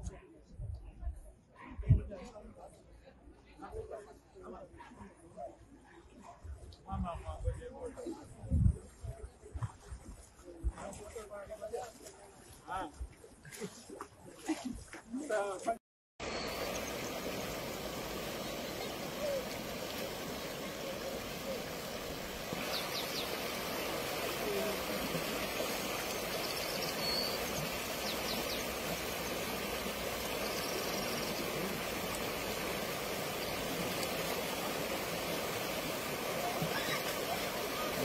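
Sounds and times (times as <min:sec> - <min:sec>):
river rushing in torrent: 0:16.2 - 0:38.0.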